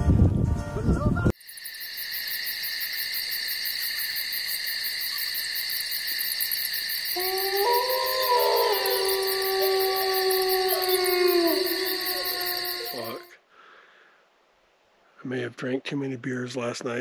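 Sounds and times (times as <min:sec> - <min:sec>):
insects trilling: 0:01.4 - 0:13.3
animal howling: 0:07.0 - 0:13.3.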